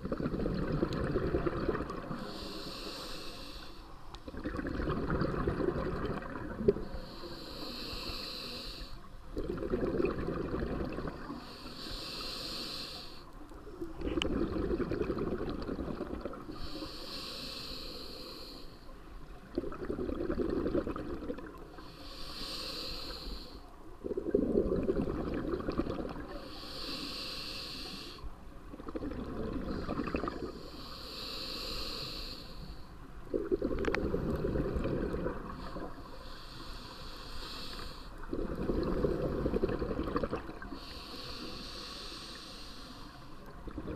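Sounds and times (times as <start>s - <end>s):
exhaled bubbles: 0.0s - 2.3s, 4.2s - 7.0s, 9.3s - 11.5s, 13.9s - 16.5s, 19.4s - 21.7s, 24.0s - 26.4s, 28.7s - 30.6s, 33.3s - 36.0s, 38.2s - 40.8s, 43.4s - 43.9s
diver breathing through regulator: 2.1s - 4.0s, 6.8s - 9.7s, 10.6s - 13.4s, 16.4s - 18.9s, 21.7s - 23.7s, 26.3s - 28.3s, 29.6s - 43.5s.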